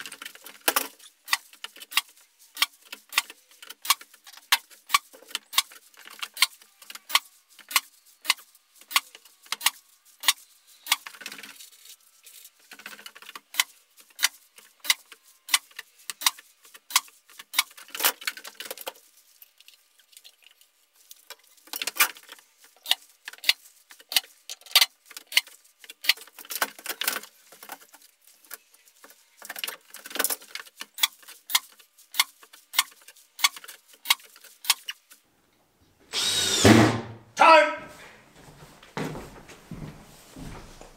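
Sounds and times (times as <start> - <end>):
rustling and shuffling: 37.9 - 40.9.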